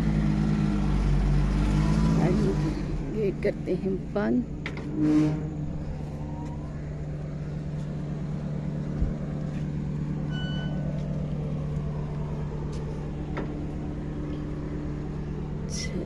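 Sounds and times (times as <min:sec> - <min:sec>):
car engine idling: 0:00.0 - 0:16.0
metal gate squeak: 0:04.8 - 0:06.5, 0:10.3 - 0:10.8.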